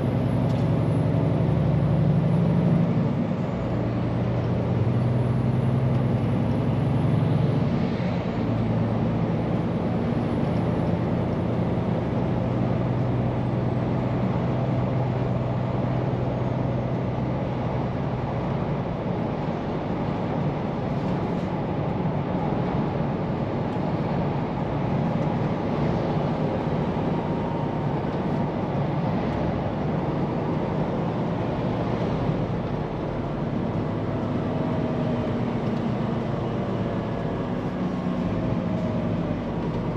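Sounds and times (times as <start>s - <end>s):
tyre and road noise: 0.0s - 39.9s.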